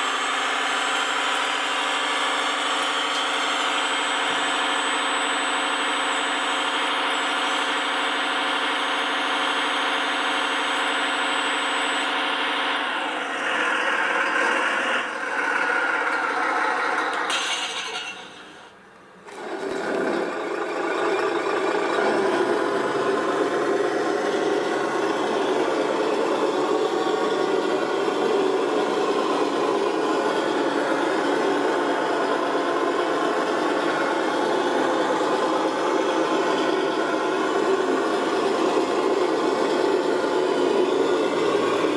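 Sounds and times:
mechanical whir of toy machines: 0.0 - 41.9
model engine idling: 19.3 - 41.9.

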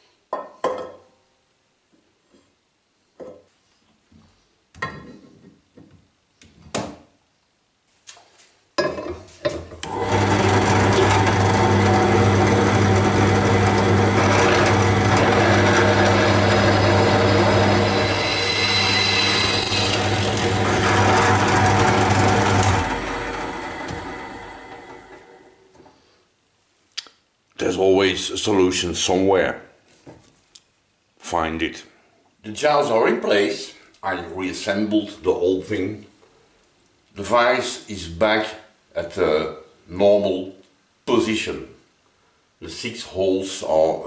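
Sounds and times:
drill press drilling metal: 9.9 - 25.3.

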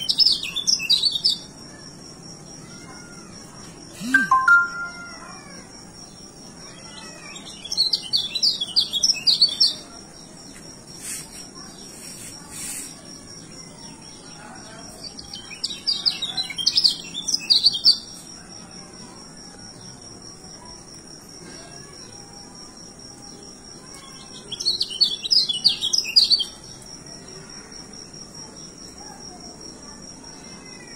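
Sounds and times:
high-pitched drone: 4.0 - 5.2.

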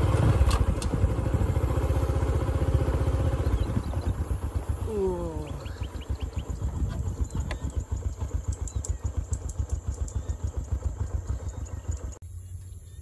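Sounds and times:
motorcycle engine running: 0.0 - 12.4.

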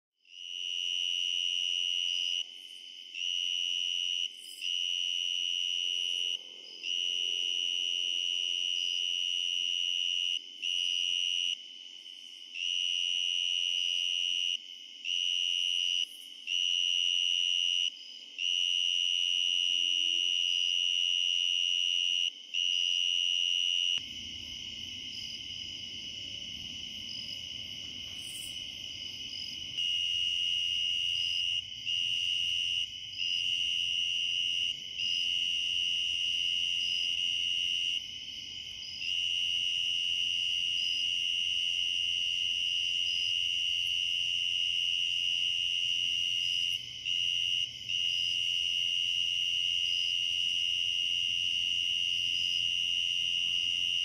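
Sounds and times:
cricket trilling: 19.6 - 54.0.

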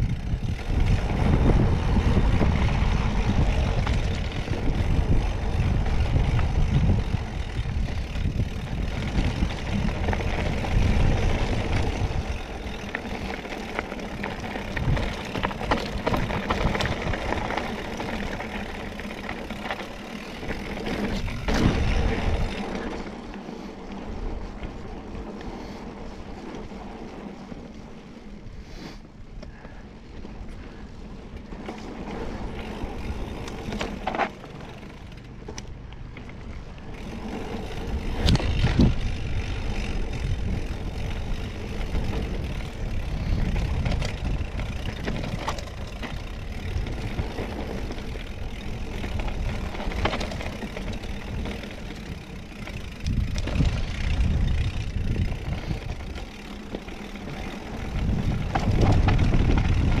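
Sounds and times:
wind on microphone: 0.0 - 12.8, 37.9 - 56.3, 57.2 - 60.0
bike knocks and rattles: 0.0 - 23.3, 31.5 - 60.0
tyres on dirt and rock: 0.0 - 28.4, 29.3 - 60.0.

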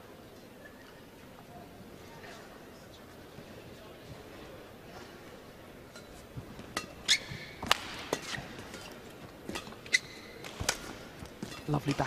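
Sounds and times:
shoes squeaking on court: 5.8 - 12.0
racket hitting shuttlecock: 6.4 - 12.0.

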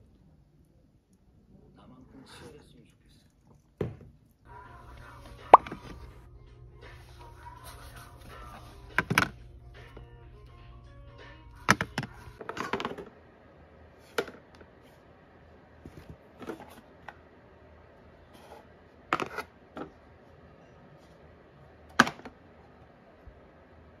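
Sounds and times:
plastic bins clacking: 11.6 - 13.1.

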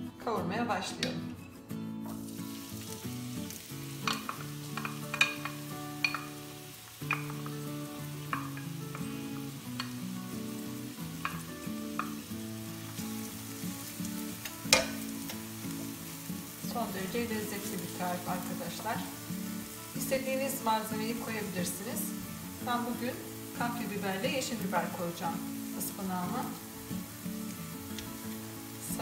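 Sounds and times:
soft background music: 0.0 - 29.0
onions sizzling in oil: 2.1 - 29.0.

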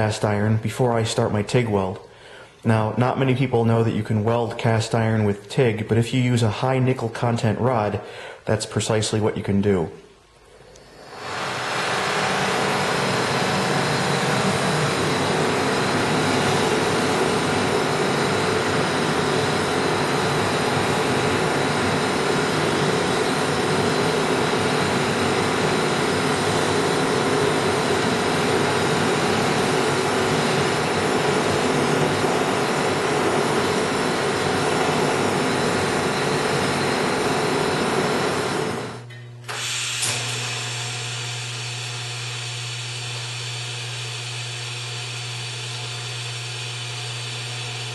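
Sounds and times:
welding arc buzzing hum: 10.4 - 47.9
click: 10.7 - 10.9
torch flame hissing: 10.8 - 42.8.

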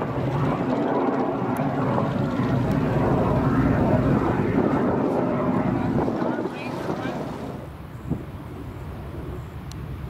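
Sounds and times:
jet engine roaring: 0.0 - 10.0.

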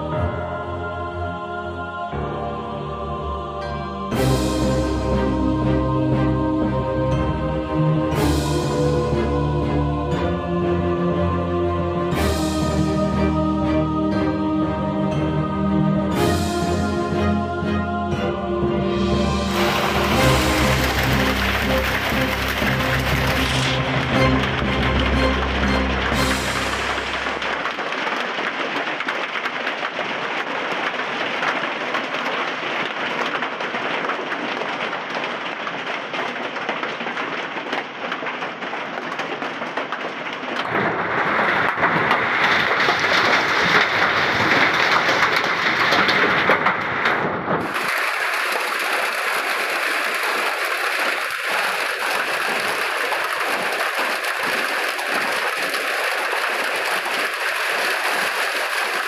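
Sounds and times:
hail and rain pelting: 19.4 - 59.0.

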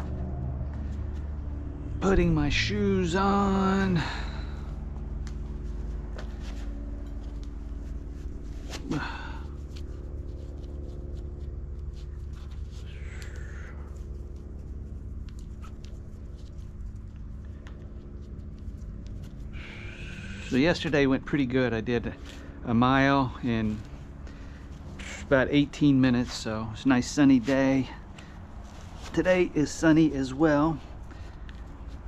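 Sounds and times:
steady low hum: 0.0 - 32.0
rustles and clicks of shoelaces: 4.0 - 32.0.

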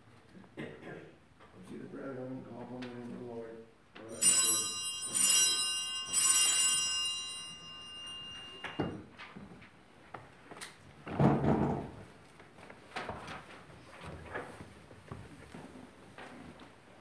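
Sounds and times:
bell ringing: 4.0 - 9.0.

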